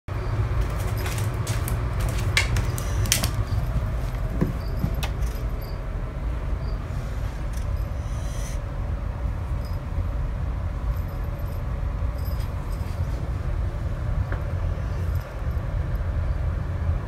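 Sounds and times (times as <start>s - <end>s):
steady low hum: 0.1s - 17.0s
claws scrabbling on tile floor: 0.5s - 5.7s.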